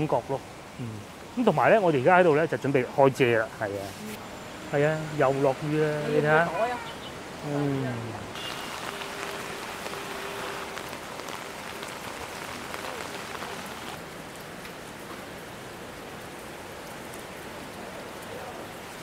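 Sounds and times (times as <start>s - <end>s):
steady rain hiss: 0.0s - 19.0s
raindrops ticking: 8.3s - 19.0s.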